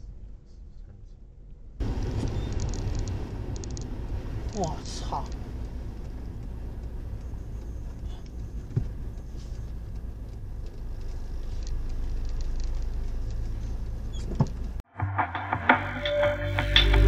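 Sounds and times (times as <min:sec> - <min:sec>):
car engine and tyres on wet road: 0:00.0 - 0:14.8.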